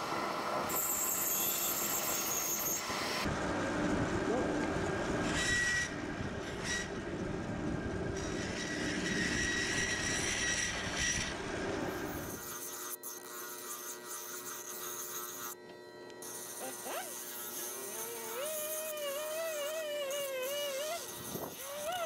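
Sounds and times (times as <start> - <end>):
bandsaw cutting wood: 12.2 - 15.6, 16.2 - 22.0.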